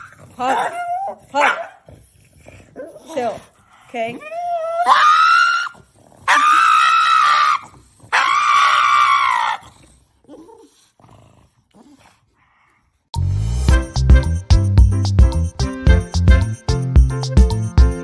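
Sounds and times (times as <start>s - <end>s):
dog howling: 4.2s - 9.6s
music: 13.2s - 18.0s.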